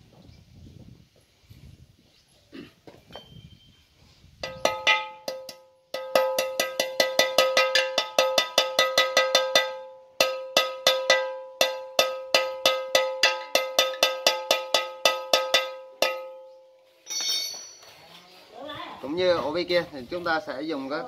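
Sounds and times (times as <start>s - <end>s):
metal-on-metal tapping: 4.4s - 17.9s.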